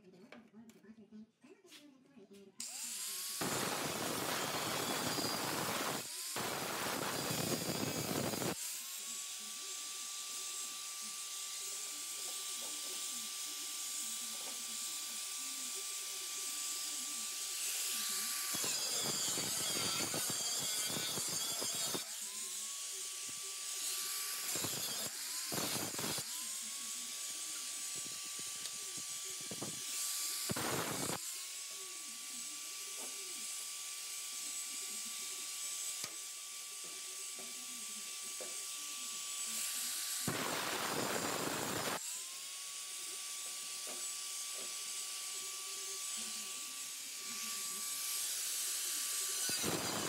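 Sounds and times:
angle grinder cutting metal: 2.6s - 50.0s.

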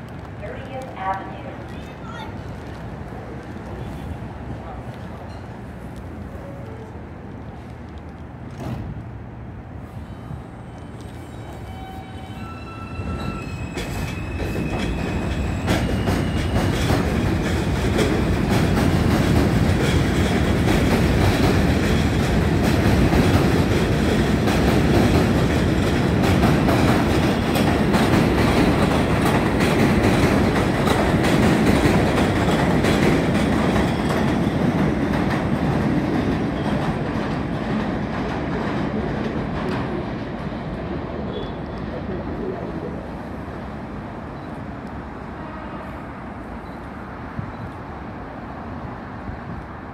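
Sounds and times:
train wheels clattering over rail joints: 13.7s - 40.0s.

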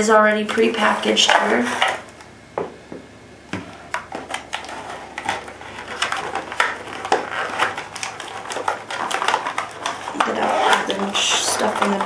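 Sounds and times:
plastic packaging crinkling: 3.7s - 12.0s.

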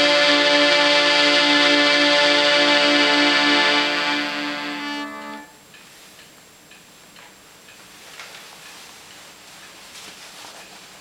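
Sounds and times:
accordion chord: 0.0s - 5.6s.

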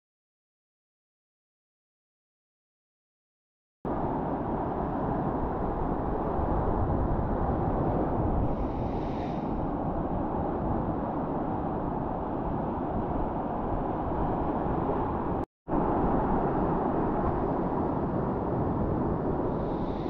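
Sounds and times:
rumbling rush of wind and water: 3.9s - 20.0s
hiss of surf: 8.3s - 9.9s, 19.2s - 20.0s.

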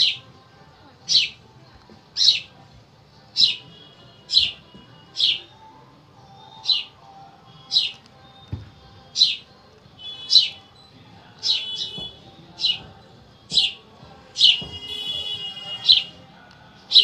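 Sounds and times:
high bird-like chirps: 3.3s - 5.6s, 6.3s - 13.8s.

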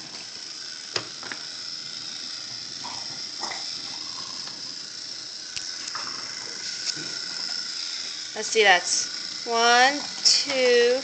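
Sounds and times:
toy trains clicking on wooden track: 8.3s - 11.0s.

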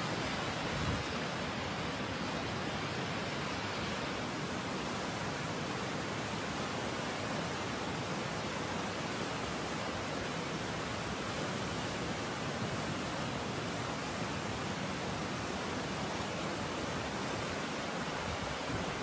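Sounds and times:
flooded river rushing: 0.0s - 19.0s.

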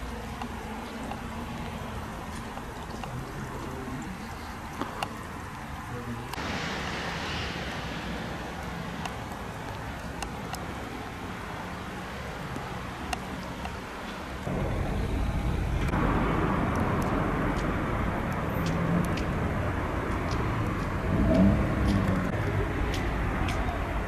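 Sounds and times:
rush of hiss: 6.4s - 9.0s.

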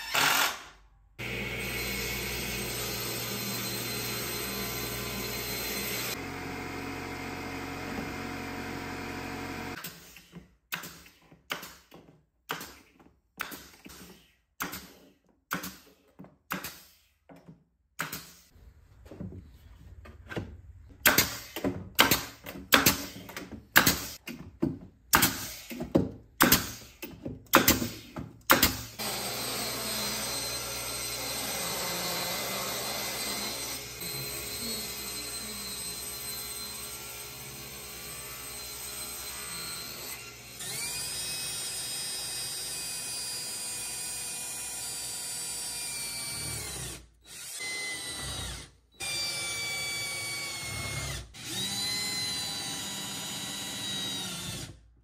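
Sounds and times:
cordless drill driving screws: 0.0s - 0.7s, 28.7s - 54.8s
table saw running: 1.2s - 9.8s, 29.0s - 44.2s.

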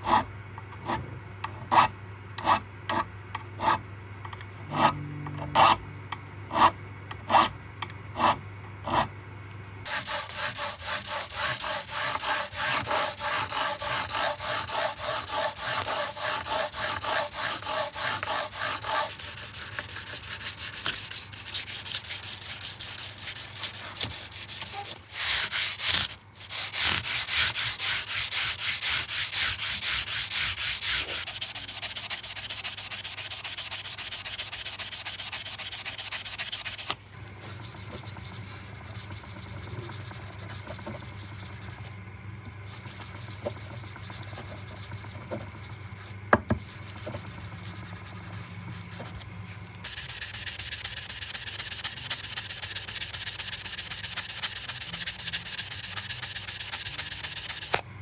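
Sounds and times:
file strokes on metal frets: 9.9s - 36.8s, 42.7s - 49.2s, 49.8s - 57.8s
abrasive pad scrubbing: 9.9s - 41.7s, 42.7s - 57.8s.

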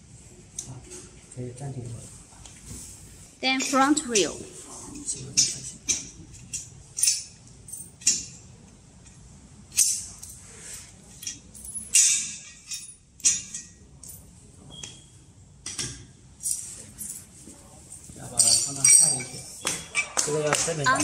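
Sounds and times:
steel parts clinking: 5.2s - 15.0s, 18.3s - 20.2s.

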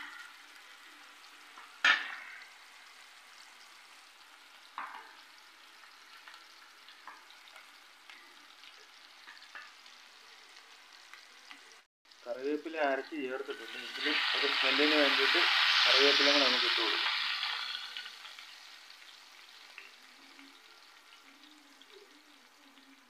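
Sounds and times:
deep-frying sizzle with crackles: 0.0s - 23.0s
steel ladle in pan: 1.6s - 2.5s.

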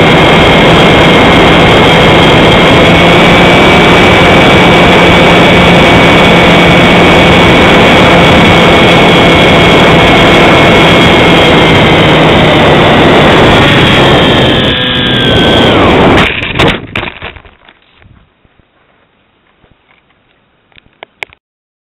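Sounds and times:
wind rush: 0.0s - 17.4s
model plane motor and propeller: 0.0s - 17.8s.

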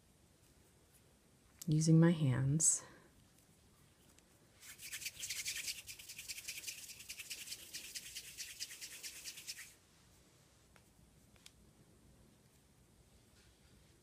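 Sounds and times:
hands rolling clay: 3.1s - 9.8s.

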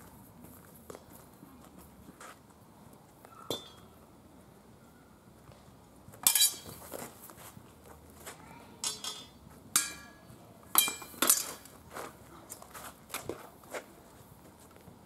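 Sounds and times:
steel swords clashing: 6.2s - 6.7s, 8.8s - 10.2s, 10.8s - 11.7s.

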